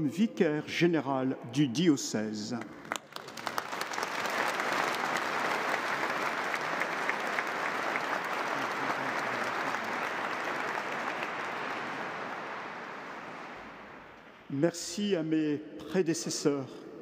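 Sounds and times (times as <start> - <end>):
crowd applauding: 2.9 - 14.3.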